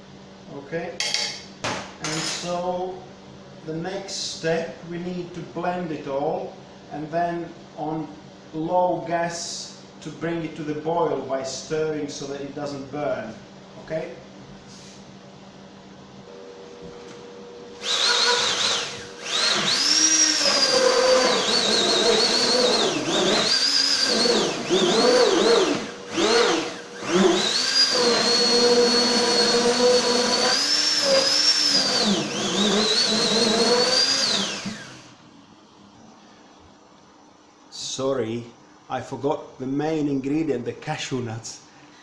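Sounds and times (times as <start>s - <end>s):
immersion blender motor whine: 17.8s - 35.2s.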